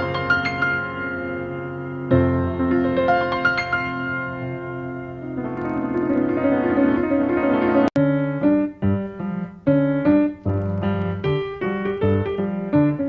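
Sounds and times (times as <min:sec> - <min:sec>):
piano music: 0:00.0 - 0:13.0
click: 0:10.3 - 0:11.3.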